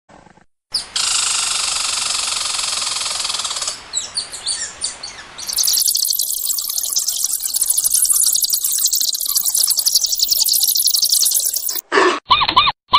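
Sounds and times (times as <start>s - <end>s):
birds chirping: 5.4s - 11.8s.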